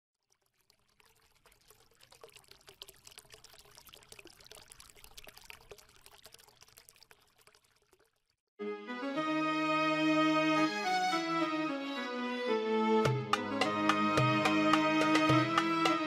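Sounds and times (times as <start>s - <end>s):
faint crackling trickle: 0.1s - 8.5s.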